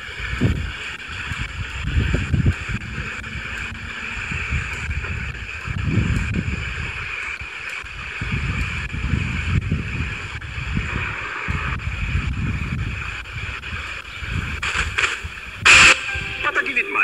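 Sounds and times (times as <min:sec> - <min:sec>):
wind gusting on microphone: 0:00.0 - 0:16.8
radio static hiss: 0:09.9 - 0:17.0.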